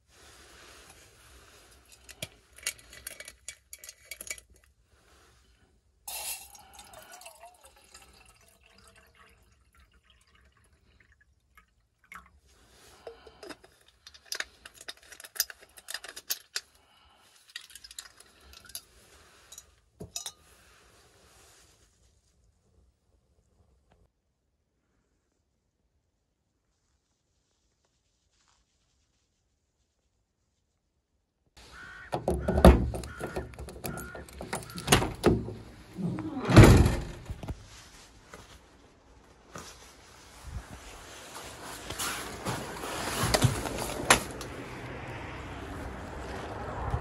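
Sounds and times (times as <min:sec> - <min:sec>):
metal cookware clinking: 0:20.0 - 0:20.4.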